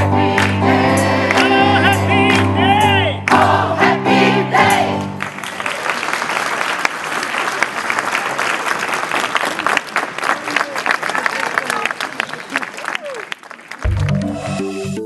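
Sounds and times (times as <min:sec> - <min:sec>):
gospel choir singing: 0:00.0 - 0:05.2
sustained instrumental chords: 0:00.0 - 0:05.2, 0:13.9 - 0:15.0
crowd applauding: 0:00.4 - 0:03.7, 0:04.7 - 0:14.2.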